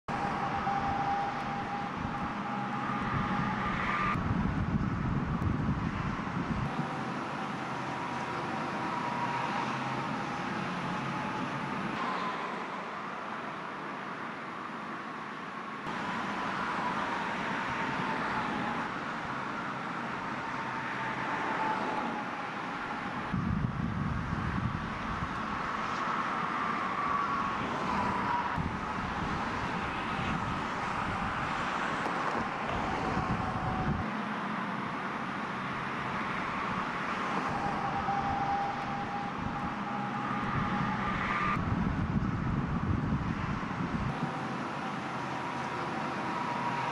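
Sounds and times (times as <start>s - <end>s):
passing cars hum: 0.0s - 46.9s
faint steady high tone: 0.1s - 4.2s, 37.4s - 41.6s.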